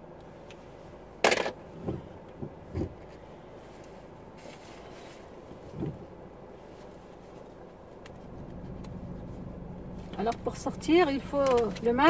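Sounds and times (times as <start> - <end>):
faint steady background: 0.0 - 12.0
clothing rustling: 1.7 - 10.2.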